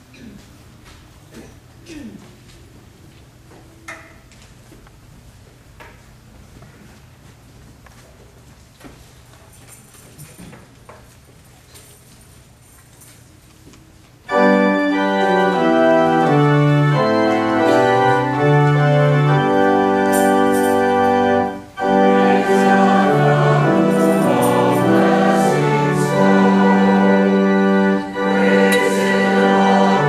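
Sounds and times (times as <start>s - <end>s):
organ playing slow chords: 14.3s - 30.0s.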